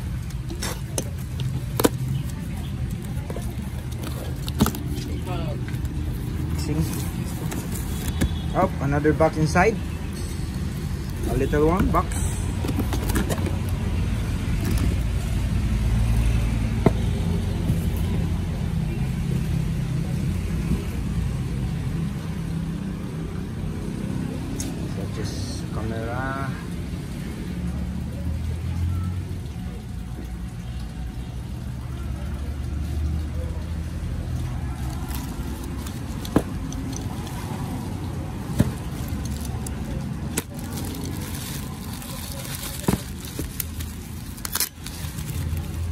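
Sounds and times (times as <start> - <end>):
bubble wrap crinkling: 0.2 - 8.6, 34.4 - 45.9.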